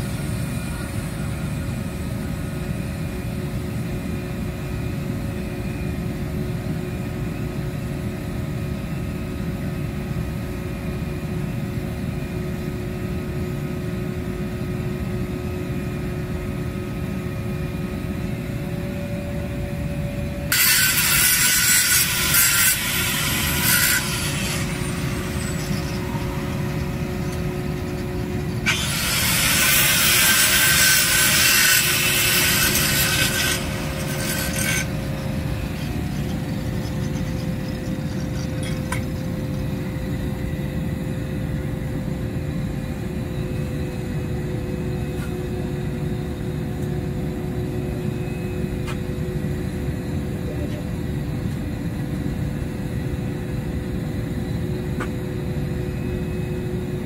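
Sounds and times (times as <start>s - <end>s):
low hum of machinery: 0.0s - 57.0s
angle grinder grinding steel pipe: 20.5s - 39.1s.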